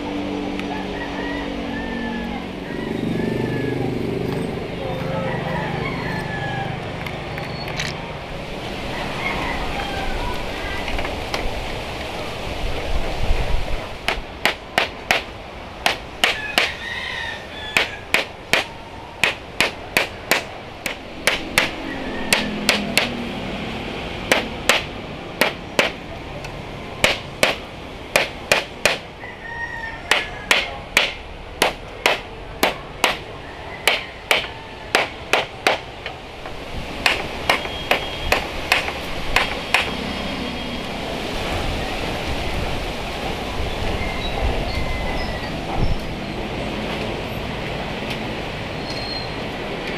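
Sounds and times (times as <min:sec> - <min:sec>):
hammer nailing wood: 0:14.1 - 0:16.8, 0:17.8 - 0:23.2, 0:24.3 - 0:26.0, 0:27.0 - 0:29.1, 0:30.1 - 0:40.0.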